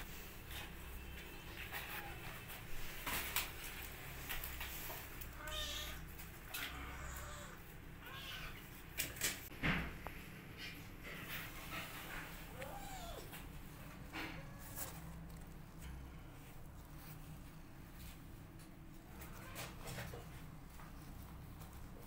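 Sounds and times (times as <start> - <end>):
kittens mewing: 5.4 - 8.7, 12.2 - 13.5.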